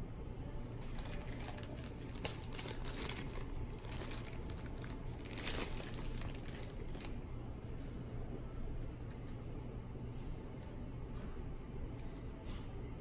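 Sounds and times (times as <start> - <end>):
plastic bag crinkling: 0.8 - 7.2.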